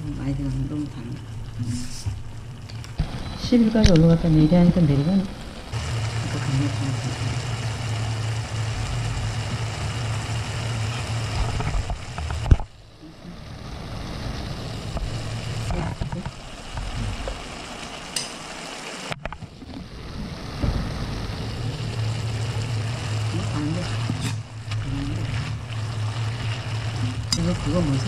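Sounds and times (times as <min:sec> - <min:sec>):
induction hotplate humming: 0:00.0 - 0:28.0.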